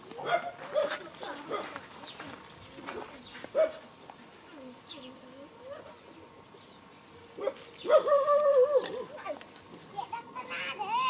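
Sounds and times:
dog barking: 0.2 - 1.8, 3.5 - 3.8, 7.4 - 8.3
soft low dog calls: 7.4 - 9.2.

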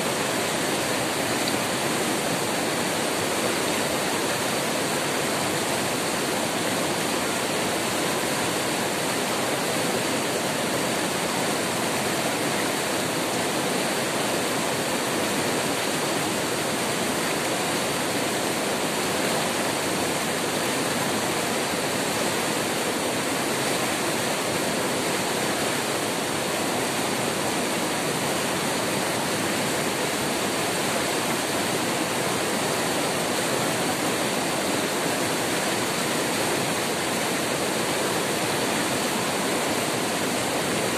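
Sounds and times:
river rapid rushing over boulders: 0.0 - 40.9.

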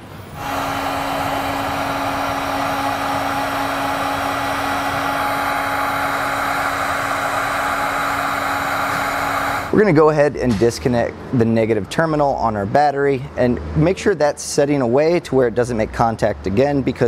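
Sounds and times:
heat gun blowing air: 0.0 - 9.8
heat gun motor hum: 0.3 - 9.8.

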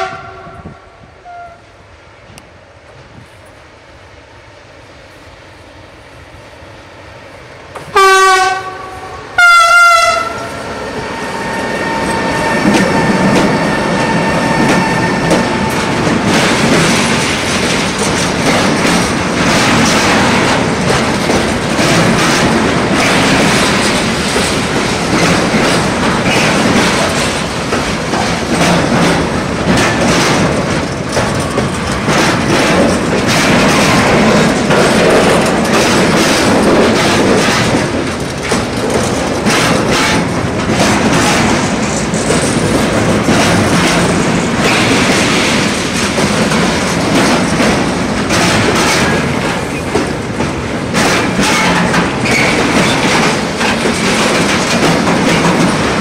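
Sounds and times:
locomotive horn blasts: 0.0 - 1.7, 7.9 - 10.5
freight train rumbling past: 0.0 - 56.0
wheels clacking over rail joints: 7.7 - 56.0.

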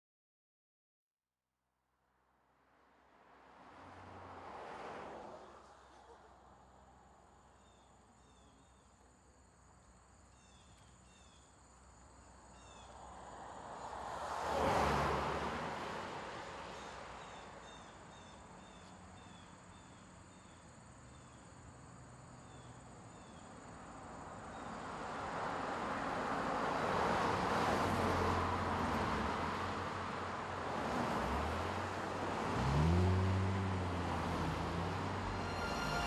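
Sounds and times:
insects chirping: 7.4 - 14.0, 16.5 - 24.9
car approaching: 24.9 - 36.0.

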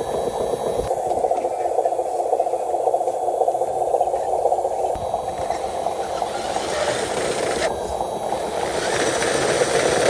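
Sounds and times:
toy truck electric motor whirring: 6.0 - 7.7, 8.3 - 10.0.

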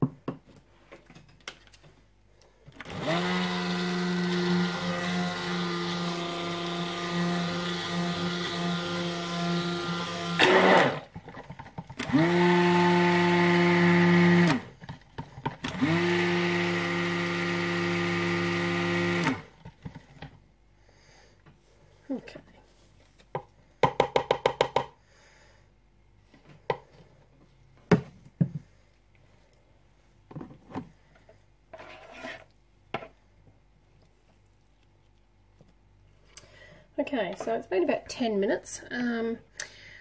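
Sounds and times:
stick blender running: 2.8 - 20.0.

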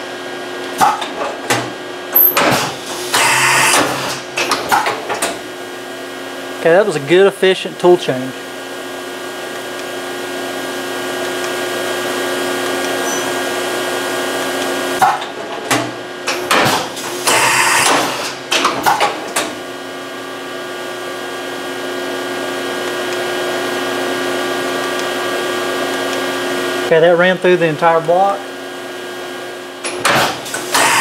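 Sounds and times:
milling machine motor hum: 0.0 - 31.0
tool-changer clunks and clicks: 0.8 - 5.4, 15.0 - 19.6.

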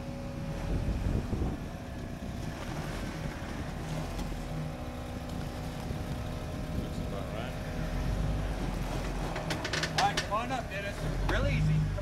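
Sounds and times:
engine running at low revs: 0.0 - 12.0
wind on microphone: 0.4 - 4.3, 5.4 - 7.3.

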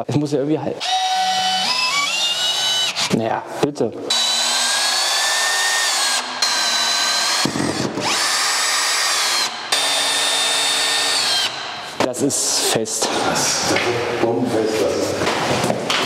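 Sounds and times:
power drill driving screw: 0.8 - 3.2, 4.1 - 12.0.

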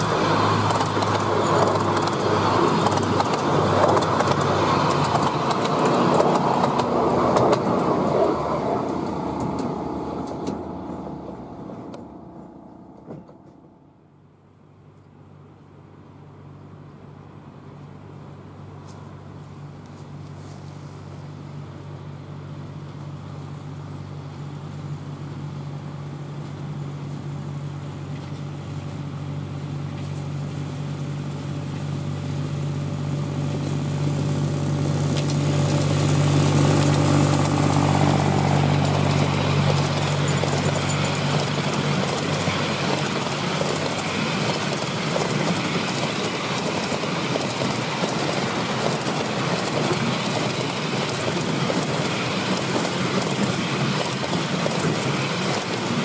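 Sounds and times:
locomotive engine humming: 0.0 - 56.0
train rumbling over track: 0.0 - 56.0.

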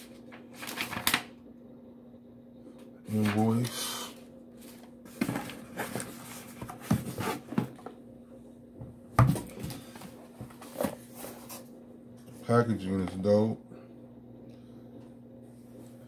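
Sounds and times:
cardboard box rustling: 5.1 - 7.8.

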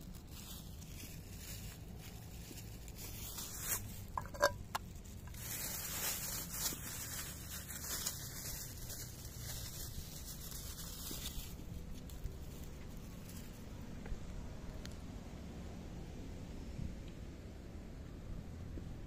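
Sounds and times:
wet crackle: 0.0 - 13.5.

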